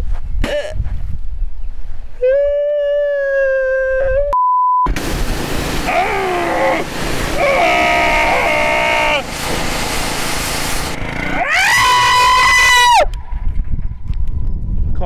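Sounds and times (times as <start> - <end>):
man screaming: 2.2 - 4.2, 5.9 - 9.2, 11.3 - 13.1
censor bleep: 4.3 - 4.9
pressure washer jet hissing: 4.9 - 11.3
man yelling and groaning: 5.9 - 9.2.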